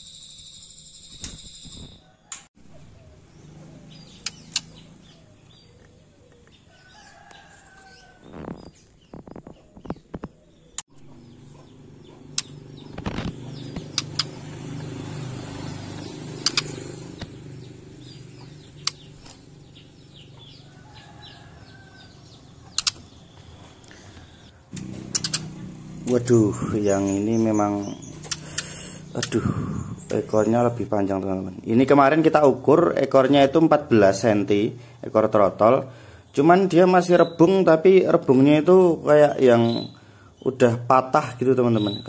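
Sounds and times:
bird wing flaps: 12.4 - 14.4.

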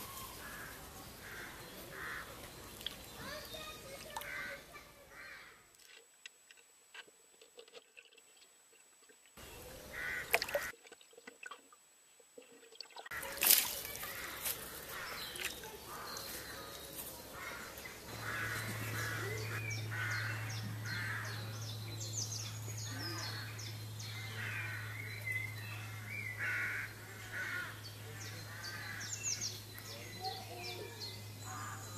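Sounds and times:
crows cawing: 0.0 - 2.6, 3.2 - 5.6, 9.8 - 10.7, 13.1 - 21.7, 22.9 - 29.5, 31.4 - 31.9
low steady hum: 0.0 - 31.9
shallow water splashing: 5.8 - 14.4.

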